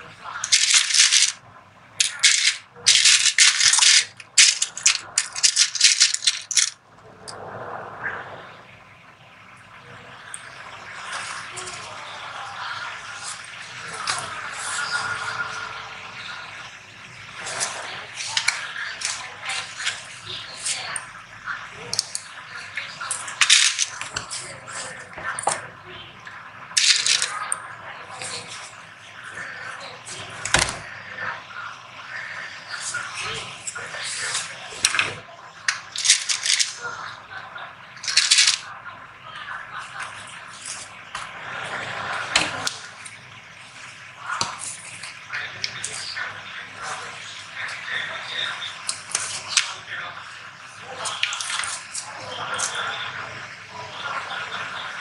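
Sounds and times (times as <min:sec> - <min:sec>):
plastic buttons rattling in a box: 0:00.4 - 0:01.4, 0:02.0 - 0:06.8.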